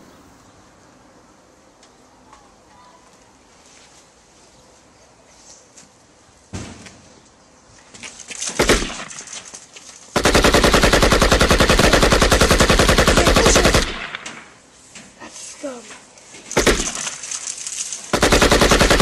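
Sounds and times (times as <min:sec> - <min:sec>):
machine-gun burst: 0:08.6 - 0:09.3, 0:10.1 - 0:14.2, 0:16.5 - 0:17.4, 0:18.1 - 0:19.0.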